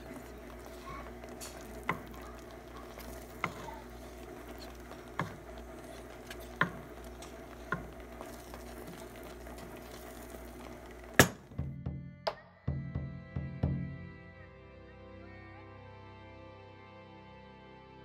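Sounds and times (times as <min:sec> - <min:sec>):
wooden spoon stirring in pot: 0:00.0 - 0:11.6.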